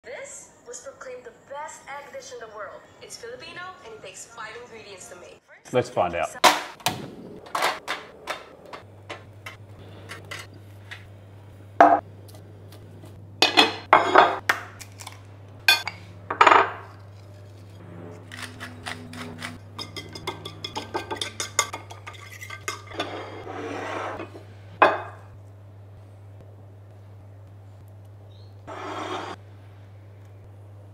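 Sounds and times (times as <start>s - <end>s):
low steady hum: 6.8s - 30.9s
dishes and utensils clinking: 7.6s - 11.1s, 13.4s - 14.4s, 18.3s - 25.2s.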